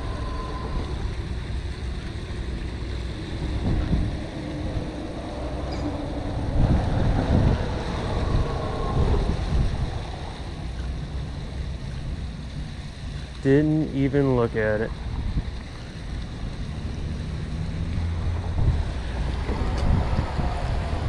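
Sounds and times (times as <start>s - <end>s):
water rushing over spillway: 0.0s - 21.0s
wind buffeting microphone: 0.0s - 21.0s.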